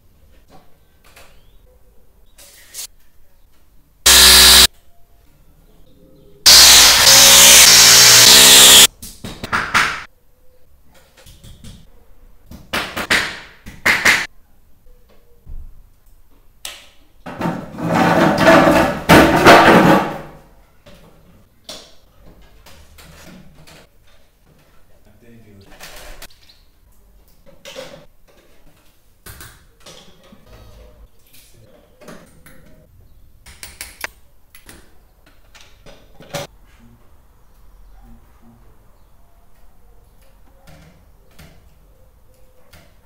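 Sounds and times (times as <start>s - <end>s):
power drill whirring: 4.1s - 4.7s, 6.5s - 8.9s
knocks and scrapes: 17.3s - 19.0s.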